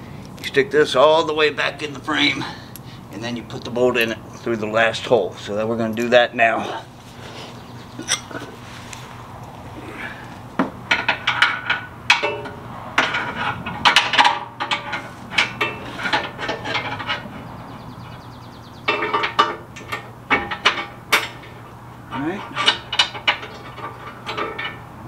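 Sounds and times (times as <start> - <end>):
metal clinking and knocking: 10.6 - 17.5, 18.9 - 24.9.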